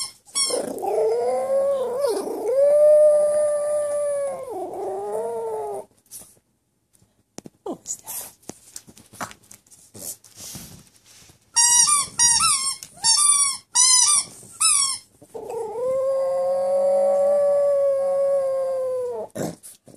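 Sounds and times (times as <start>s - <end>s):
rubber toy squealing: 0.0s - 2.1s
dog howling: 0.6s - 5.9s, 15.4s - 19.4s.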